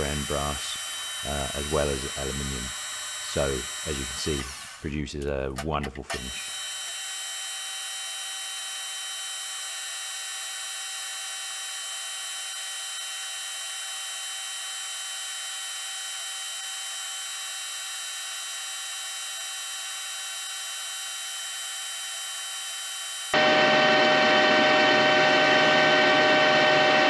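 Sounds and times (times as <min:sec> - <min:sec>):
metal lathe whining: 0:00.0 - 0:04.8, 0:23.4 - 0:27.0.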